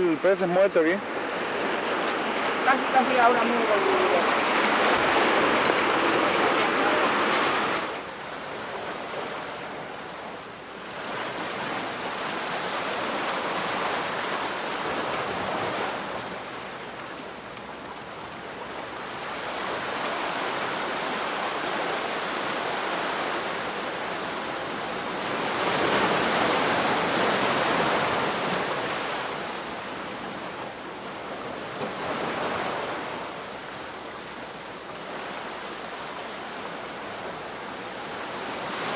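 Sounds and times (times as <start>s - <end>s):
river water rushing over rocks: 0.0s - 8.5s.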